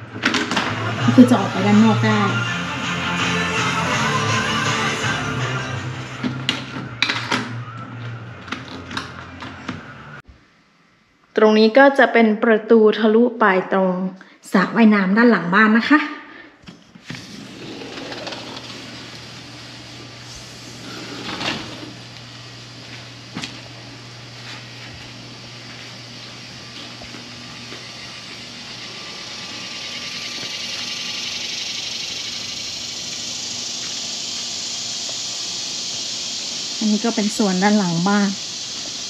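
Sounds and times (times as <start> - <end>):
low mechanical hum: 0.0 - 39.0
hiss: 17.0 - 23.5, 27.0 - 39.0.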